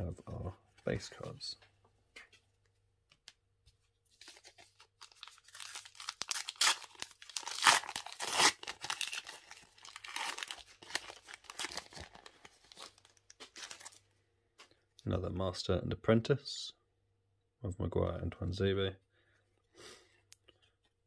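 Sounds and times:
plastic wrapper crinkling: 0:04.2 - 0:14.0.

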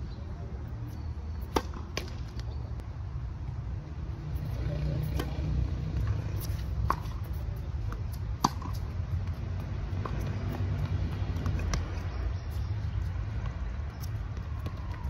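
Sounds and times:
tennis ball bouncing: 0:01.4 - 0:02.6, 0:05.0 - 0:15.0
racket striking tennis ball: 0:01.5 - 0:02.4, 0:05.0 - 0:05.4, 0:06.0 - 0:12.1.

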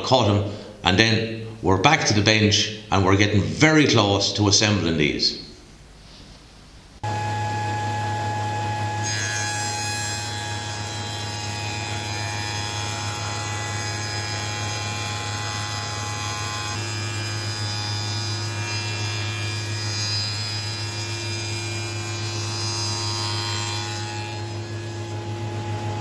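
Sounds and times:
cutter working wood: 0:07.0 - 0:26.0
spindle moulder humming: 0:22.2 - 0:26.0.

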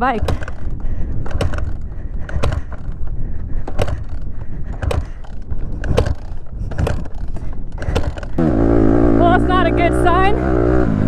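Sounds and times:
bike knocking and rattling: 0:00.0 - 0:08.7.

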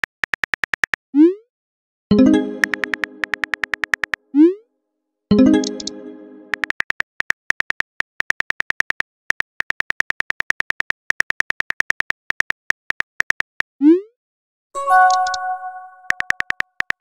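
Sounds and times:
phone keyboard clicks: 0:02.6 - 0:04.2, 0:05.6 - 0:13.5, 0:16.0 - 0:17.0.

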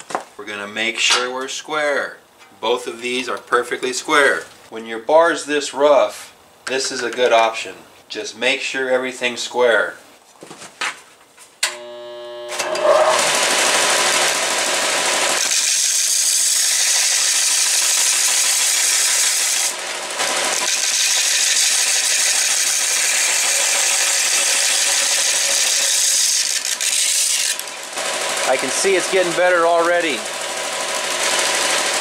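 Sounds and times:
belt sander motor humming: 0:11.7 - 0:32.0
metal grinding on sanding belt: 0:12.6 - 0:32.0.

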